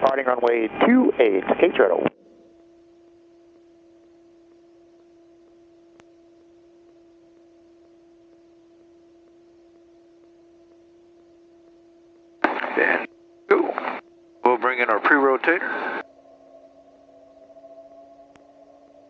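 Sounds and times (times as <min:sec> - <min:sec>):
faint electrical hum: 0:02.0 - 0:19.0
faint click: 0:05.9 - 0:06.2.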